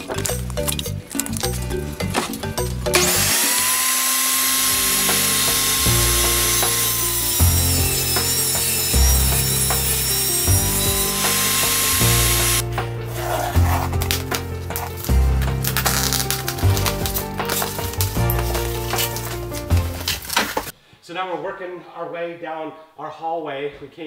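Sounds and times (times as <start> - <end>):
background music with bass line: 0.0 - 3.3, 4.6 - 20.7
table saw cutting plank: 3.0 - 12.6.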